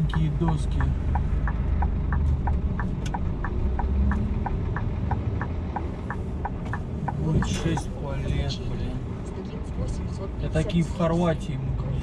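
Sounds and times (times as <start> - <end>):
turn signal relay ticking: 0.0 - 8.6
diesel engine running low: 0.0 - 10.7.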